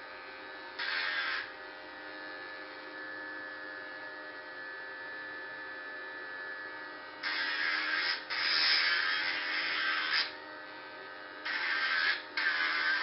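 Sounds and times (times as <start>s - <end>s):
motor whining: 11.4s - 13.0s
disc grinding workpiece: 11.5s - 13.0s.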